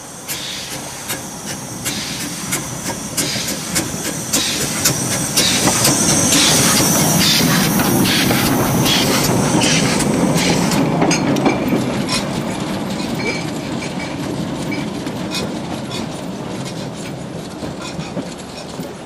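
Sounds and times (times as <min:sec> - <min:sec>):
steam hissing: 0:00.0 - 0:14.3
steam locomotive exhaust beats: 0:00.0 - 0:19.0
wheels clattering on rails: 0:00.2 - 0:19.0.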